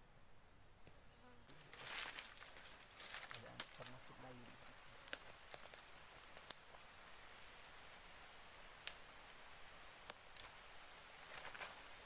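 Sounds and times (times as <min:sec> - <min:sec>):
faint steady hiss: 0:00.0 - 0:12.0
sticks clicking and snapping: 0:10.0 - 0:10.5.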